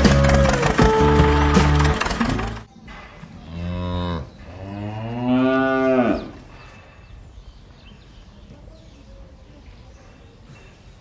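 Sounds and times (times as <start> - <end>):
cow mooing: 3.5 - 6.4.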